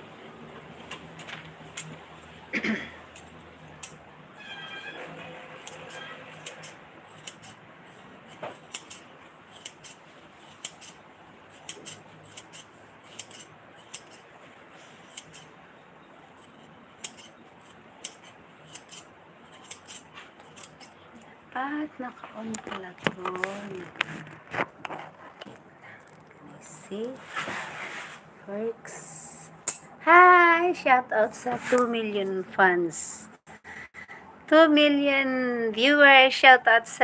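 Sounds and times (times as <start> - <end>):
scissors snipping: 3.1 - 4.0, 5.6 - 7.6, 8.3 - 14.2, 15.1 - 15.5, 16.4 - 21.0.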